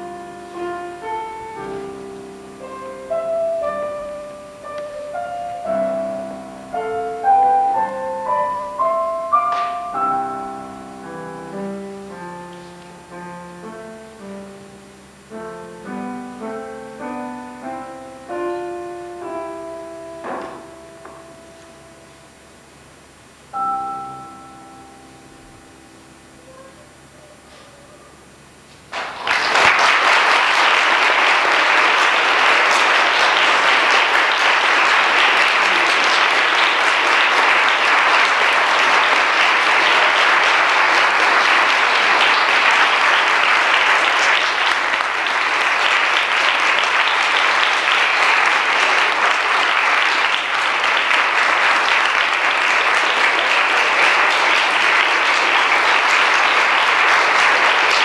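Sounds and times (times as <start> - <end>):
audience applauding: 5.6 - 10.4, 28.9 - 58.0.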